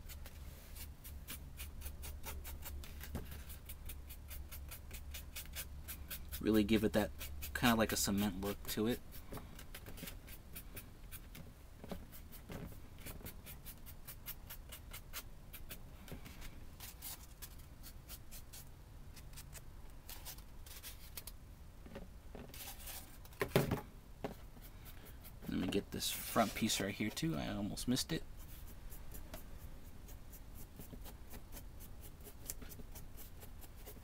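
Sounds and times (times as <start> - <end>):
scratchy paintbrush strokes: 24.4 - 34.0.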